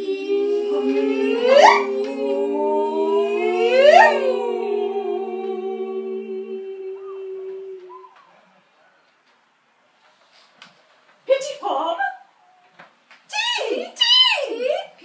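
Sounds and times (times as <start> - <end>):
voice whooping upward glide: 0.0 - 8.2
women singing sustained notes: 0.0 - 8.3.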